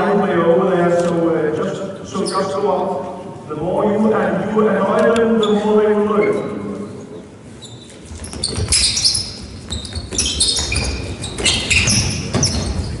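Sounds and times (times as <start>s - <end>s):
shoes squeaking on court floor: 2.1s - 2.6s, 5.3s - 13.0s.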